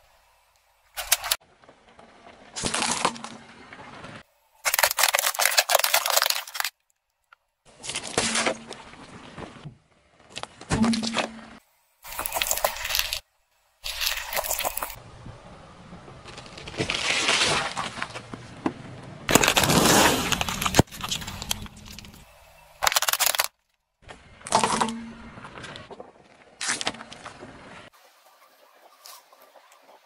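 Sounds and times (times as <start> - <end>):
car tyre crushing objects: 1.0 - 13.2, 16.2 - 22.2, 22.8 - 27.9.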